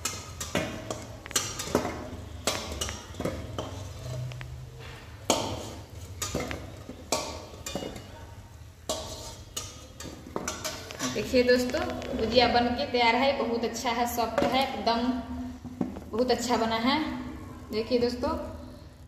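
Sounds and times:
steel spatula clinking and scraping: 0.0 - 12.3
frying oil sizzling: 0.0 - 15.1.

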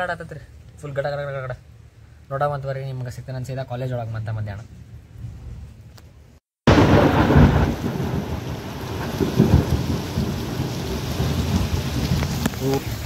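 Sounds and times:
heavy rain pouring: 6.7 - 13.0
thunder rumbling: 6.7 - 13.0.

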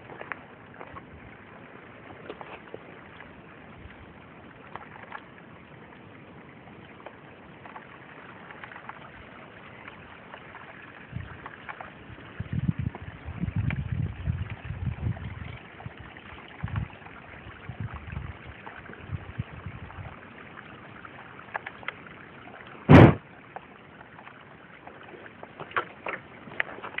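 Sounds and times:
loud short knock: 22.9 - 23.2
low rumbling handling thumps: 22.9 - 23.2.

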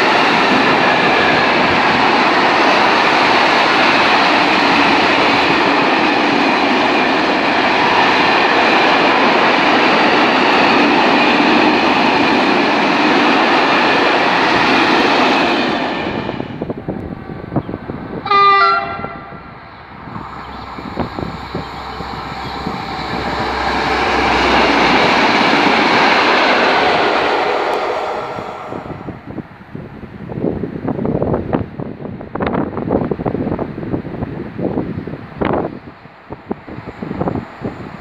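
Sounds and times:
freight train rolling past: 0.0 - 38.0
wind noise on microphone: 0.0 - 38.0
train horn blast: 18.2 - 19.6, 20.2 - 25.2, 26.6 - 29.4.

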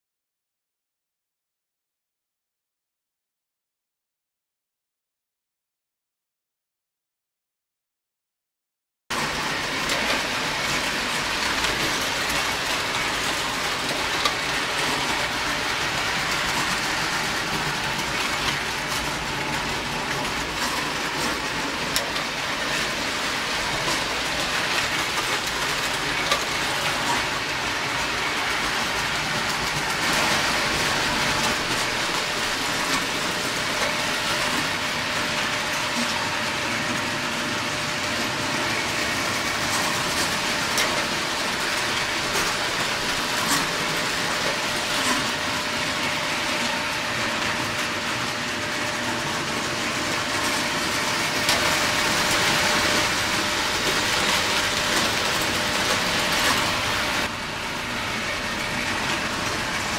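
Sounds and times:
toy train wheels clattering: 9.4 - 36.1.

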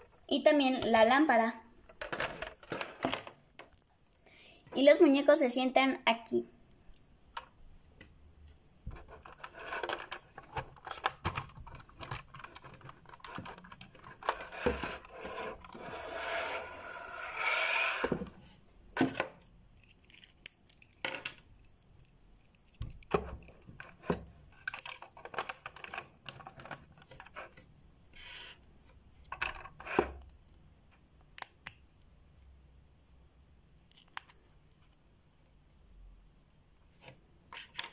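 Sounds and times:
scraping and rustling: 8.9 - 18.6
plastic toy parts clicking: 9.2 - 15.7, 24.5 - 27.4.

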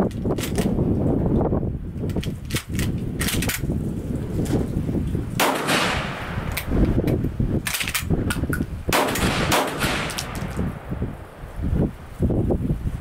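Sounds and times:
shotgun shots with echo: 5.4 - 6.6, 8.9 - 10.8.

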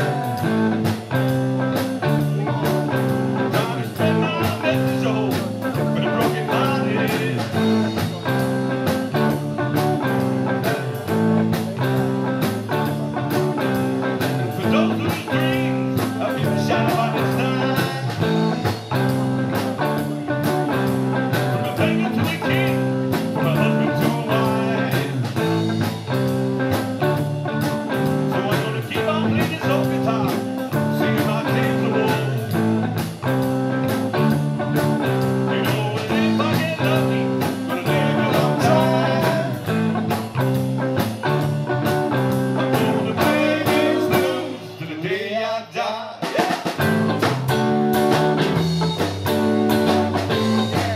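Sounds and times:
live blues rock band: 0.0 - 50.9.

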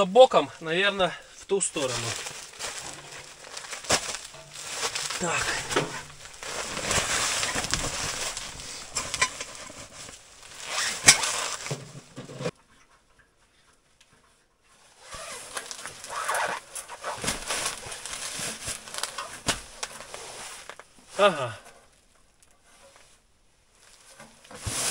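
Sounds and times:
floor mat rustling: 1.8 - 12.5, 14.8 - 20.9, 23.8 - 24.9.

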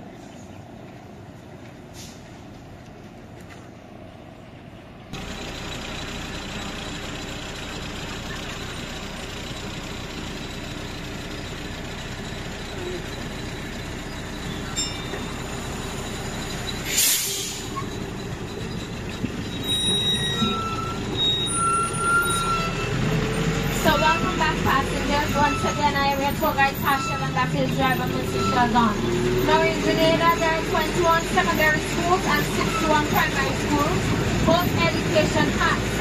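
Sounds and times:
land train engine and road noise: 0.0 - 36.0
short hiss: 16.9 - 17.7.

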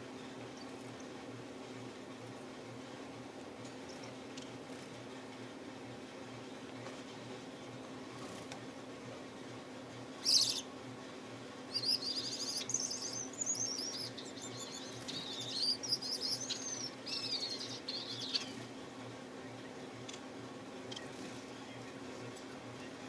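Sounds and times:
finch twittering: 10.2 - 10.7, 11.7 - 18.7.

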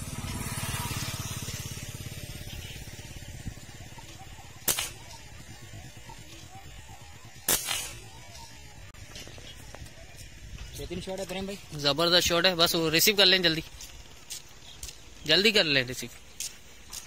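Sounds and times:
air rifle shots: 4.6 - 5.2, 7.4 - 8.2.

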